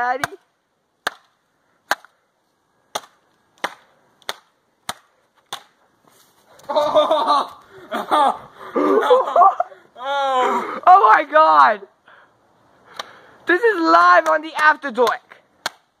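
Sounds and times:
sharp smacks: 1.0s - 2.2s, 2.9s - 5.8s, 12.9s - 13.2s, 14.2s - 16.0s
person speaking loudly: 13.5s - 15.4s.

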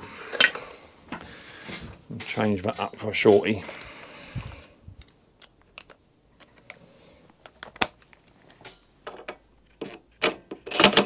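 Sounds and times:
metal tools clicking and knocking: 0.3s - 1.0s.

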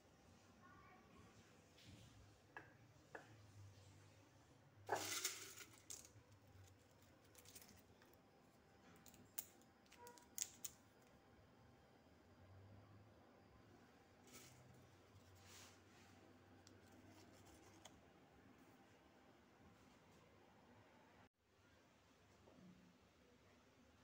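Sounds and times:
glass jars clinking: 4.9s - 6.1s.

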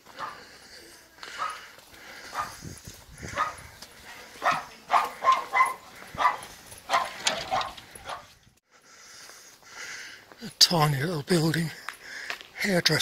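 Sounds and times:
dog barking: 0.2s - 0.5s, 1.3s - 1.7s, 2.3s - 2.6s, 3.3s - 3.6s, 4.4s - 8.4s.

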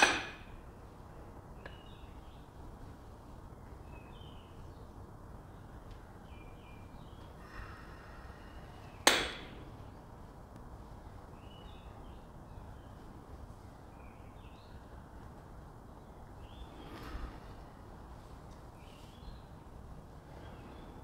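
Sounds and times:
dumbbells clanking together: 0.0s - 0.5s.

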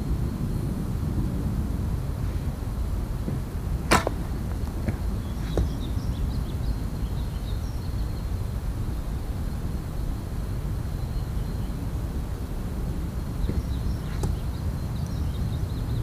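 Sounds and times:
steady low rumble: 0.0s - 16.0s
arrows striking: 3.3s - 5.8s, 13.5s - 14.4s.

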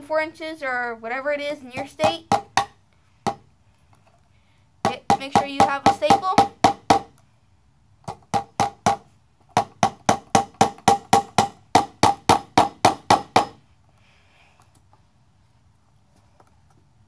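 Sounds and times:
hammer striking staple into wood: 6.4s - 7.1s, 9.6s - 13.6s.

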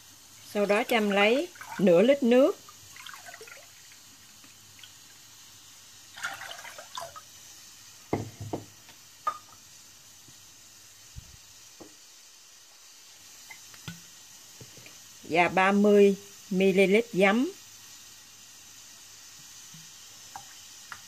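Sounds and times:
water pouring into saucepan: 0.0s - 8.1s.

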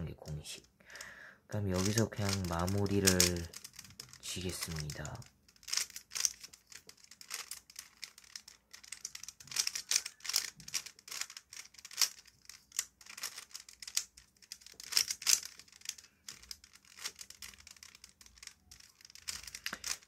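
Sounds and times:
plastic puzzle cube clicking: 1.8s - 20.0s.

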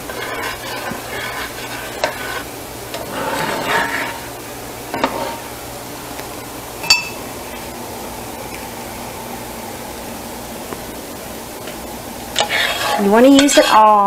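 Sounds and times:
spoon stirring thick sauce: 0.0s - 4.3s, 12.4s - 14.0s.

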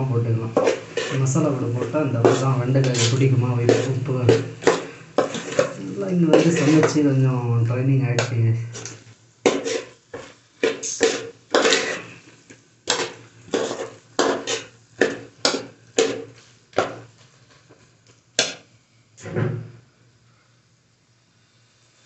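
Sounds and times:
spoon scraping metal pot: 0.5s - 7.2s, 8.2s - 12.2s, 12.9s - 17.0s.

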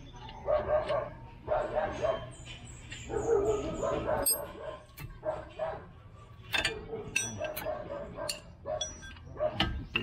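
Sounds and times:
metallic clinks of hand tools: 4.2s - 4.5s, 6.5s - 7.7s, 8.3s - 9.3s.

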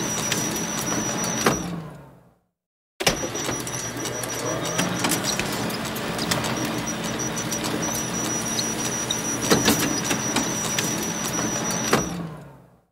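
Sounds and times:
photocopier running: 0.0s - 1.5s, 3.0s - 12.2s
photocopier clicks and clacks: 3.0s - 12.0s.

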